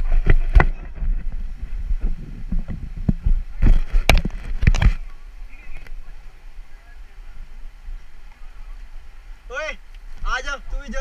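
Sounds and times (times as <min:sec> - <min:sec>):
river water splashing: 0:03.4 - 0:11.0.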